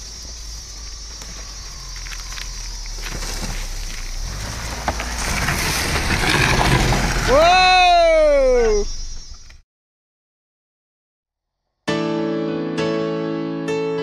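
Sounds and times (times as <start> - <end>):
tyres on gravel: 0.0 - 9.6
car engine passing: 1.8 - 7.4.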